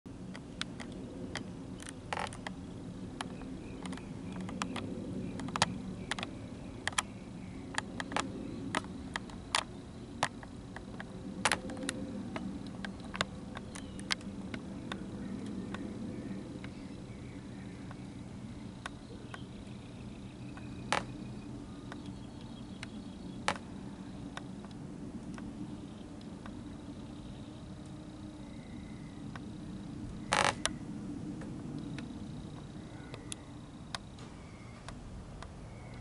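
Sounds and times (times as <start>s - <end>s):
distant jet engines rumbling: 0.1s - 36.0s
sharp clicks: 3.2s - 15.9s, 20.5s - 21.3s.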